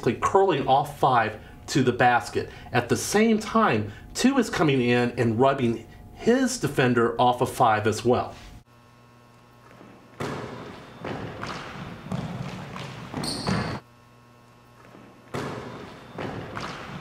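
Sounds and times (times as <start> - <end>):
basketball bouncing: 9.6 - 13.8, 14.8 - 17.0
sneakers squeaking on hardwood: 9.6 - 13.8, 14.7 - 17.0.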